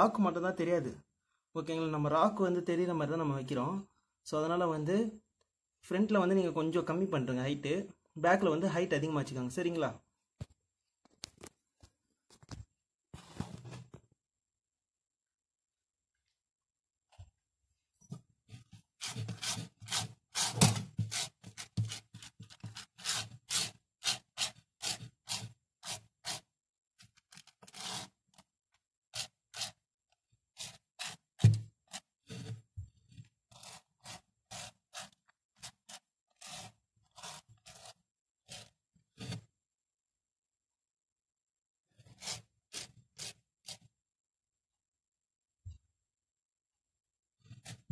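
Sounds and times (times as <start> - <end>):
scraping and rubbing: 18.4 - 28.5, 30.5 - 39.6.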